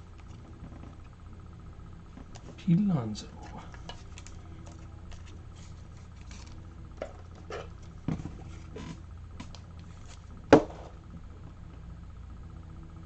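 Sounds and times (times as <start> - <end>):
low electrical hum: 0.0 - 13.0
rustling of cards being handled: 3.4 - 6.6, 7.2 - 10.3.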